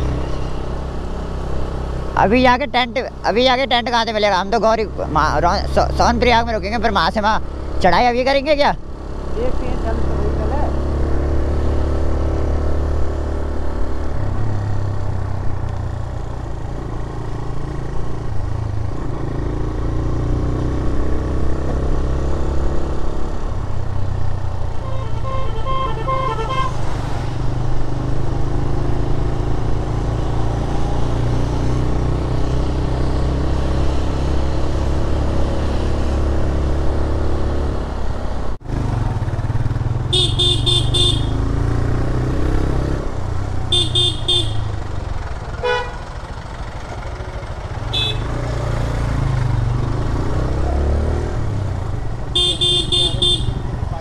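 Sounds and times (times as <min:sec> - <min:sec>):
motorcycle engine running: 0:38.6 - 0:54.0
vehicle horn short beeps: 0:40.1 - 0:41.4, 0:43.7 - 0:44.7, 0:47.9 - 0:48.3, 0:52.4 - 0:53.7.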